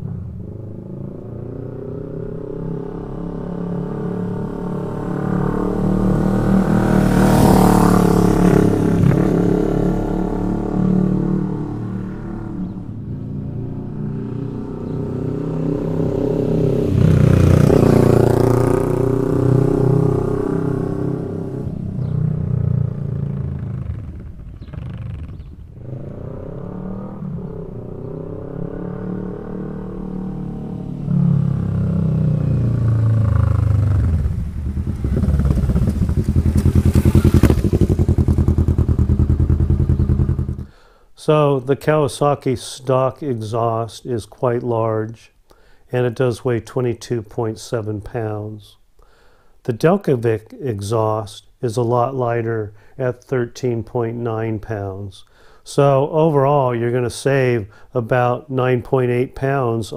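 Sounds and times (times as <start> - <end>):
motorcycle riding past: 0.0 - 40.8.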